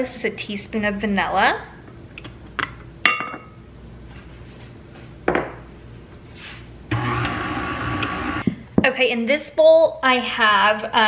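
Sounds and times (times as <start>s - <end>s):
glass bowls clinking: 3.0s - 3.6s
stand mixer motor running: 6.9s - 8.4s.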